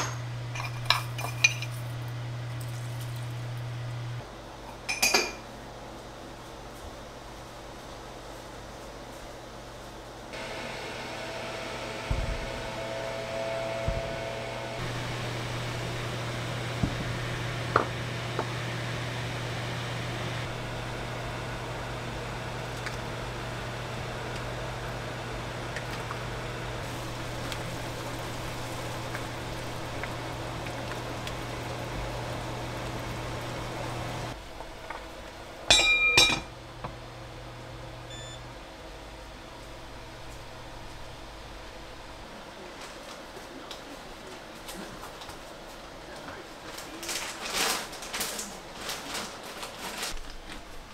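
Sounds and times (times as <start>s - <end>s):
induction cooktop humming: 0.0s - 50.9s
water boiling: 14.8s - 35.7s
short beeps: 38.1s - 38.4s.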